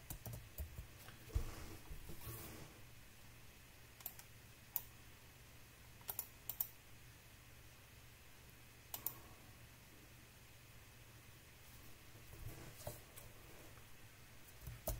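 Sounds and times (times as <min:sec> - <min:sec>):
faint low hum: 0:00.0 - 0:14.9
mouse and keyboard clicks: 0:06.0 - 0:06.7.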